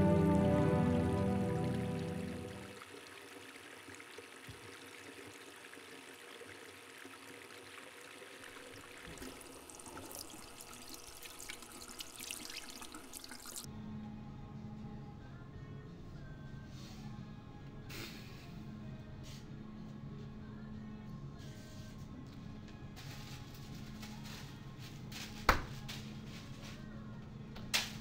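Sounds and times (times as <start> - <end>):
trickle of running water: 0.4 - 13.7.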